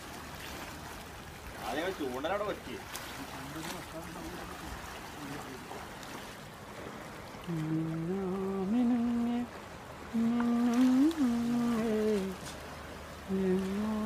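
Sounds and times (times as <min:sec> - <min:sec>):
sea water lapping on rocks: 0:00.0 - 0:14.0
man humming: 0:10.1 - 0:12.4, 0:13.3 - 0:14.0.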